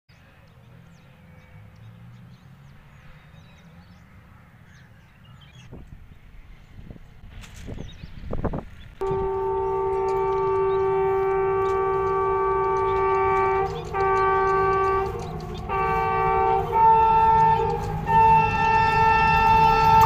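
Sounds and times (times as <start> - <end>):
locomotive air horn blasts: 9.0 - 20.0.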